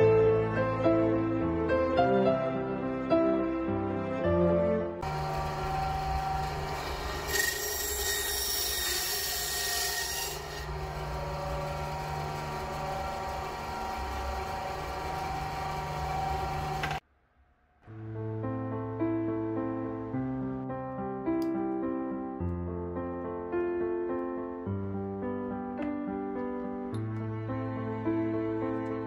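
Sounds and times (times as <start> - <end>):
band saw hissing cut: 5.0 - 17.0
band saw motor humming: 5.0 - 17.0.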